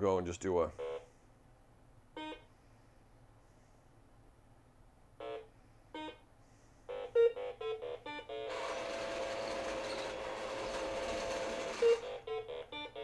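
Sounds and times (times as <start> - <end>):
toy motor whirring: 8.5 - 12.3.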